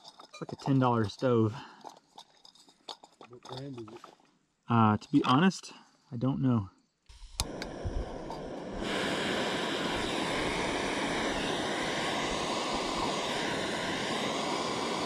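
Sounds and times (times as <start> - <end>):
gas stove burner hissing: 7.1 - 15.0.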